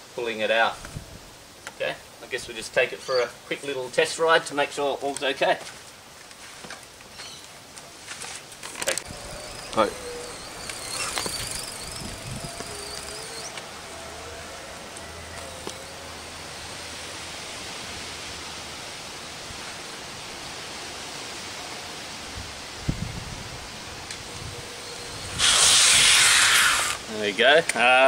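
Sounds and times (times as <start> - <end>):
outdoor background hiss: 0.0 - 28.0
electric motor whine: 8.8 - 19.9, 20.9 - 27.0.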